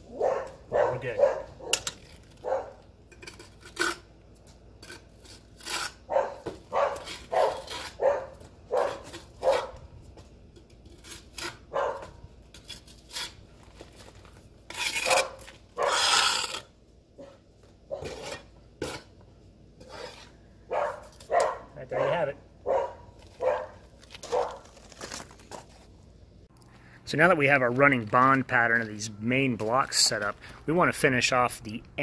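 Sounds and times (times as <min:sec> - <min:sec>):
metal trowel scraping mortar: 0:03.0 - 0:09.7, 0:10.5 - 0:16.8, 0:18.0 - 0:19.2, 0:19.8 - 0:20.4.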